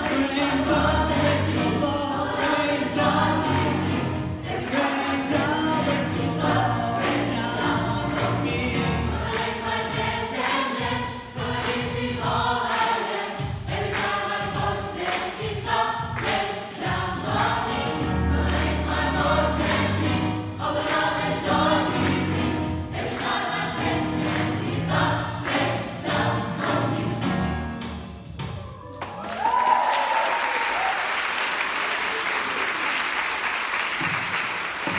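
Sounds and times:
gospel choir singing: 0:00.0 - 0:27.7
instrumental accompaniment with beat: 0:00.0 - 0:28.9.

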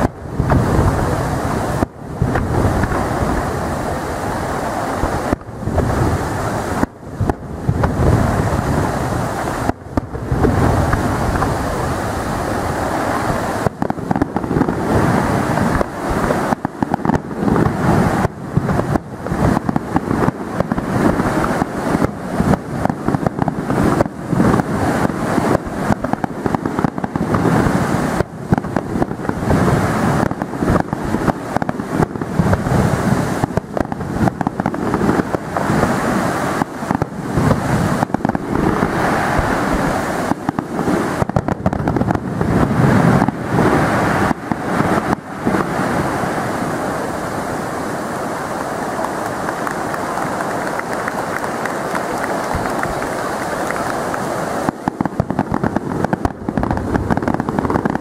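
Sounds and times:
steady rumble: 0:00.0 - 0:24.9, 0:37.1 - 0:43.8
fireworks bursts and bangs: 0:00.0 - 0:58.0.

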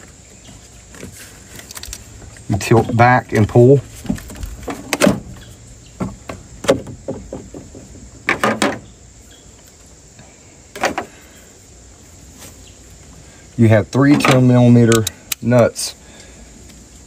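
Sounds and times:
plastic knocks and scrapes: 0:06.0 - 0:08.8.

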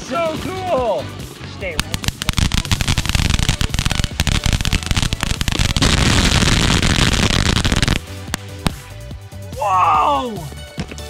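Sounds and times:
firework crackling: 0:01.7 - 0:09.0.

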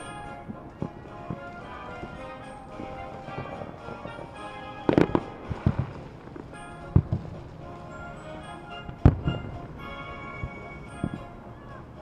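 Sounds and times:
music playing: 0:00.0 - 0:12.0
soft firework pops: 0:04.9 - 0:07.4.

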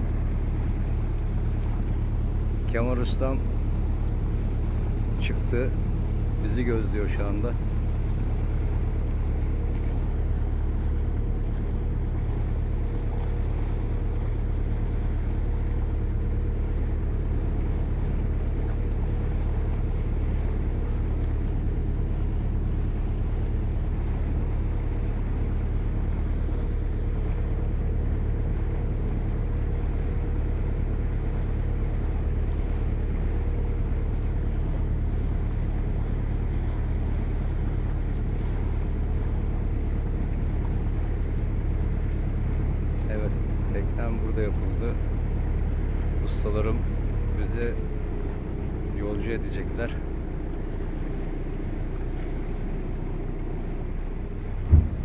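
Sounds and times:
boat engine rumbling: 0:00.0 - 0:55.0
wind on microphone: 0:54.6 - 0:55.0.

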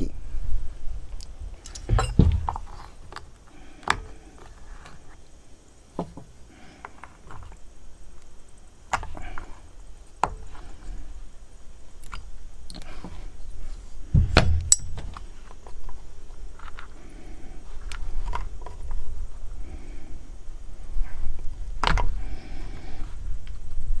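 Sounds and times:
heavy thump on table: 0:01.9 - 0:02.6, 0:14.2 - 0:14.8.

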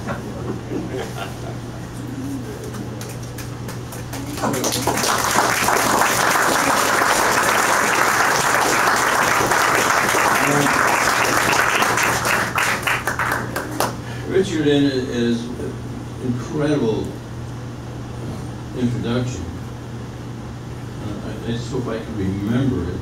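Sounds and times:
steady low hum: 0:00.0 - 0:23.0
audience applauding: 0:02.8 - 0:14.0.

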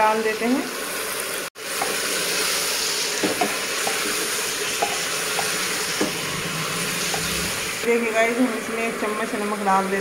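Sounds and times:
food sizzling in hot oil: 0:00.0 - 0:10.0
spoon knocking against pot: 0:03.2 - 0:06.2.

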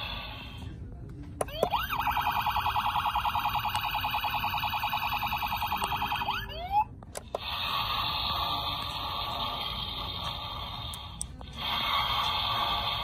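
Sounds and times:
toy electronic siren: 0:01.5 - 0:06.9.

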